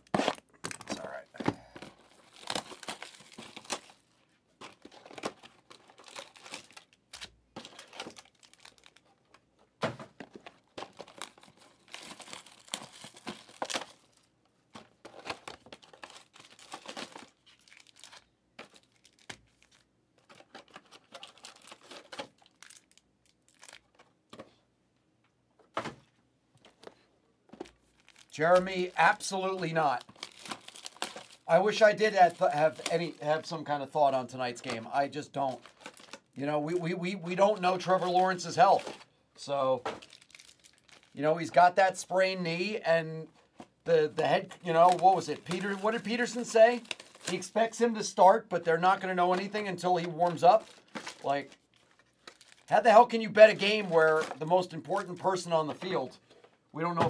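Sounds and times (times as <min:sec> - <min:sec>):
foil wrappers tearing and crinkling: 0:01.7 - 0:04.0, 0:04.7 - 0:09.1, 0:10.8 - 0:14.3, 0:15.1 - 0:24.0, 0:27.9 - 0:33.4, 0:35.4 - 0:36.3, 0:40.0 - 0:41.2, 0:44.3 - 0:47.6, 0:48.9 - 0:56.0.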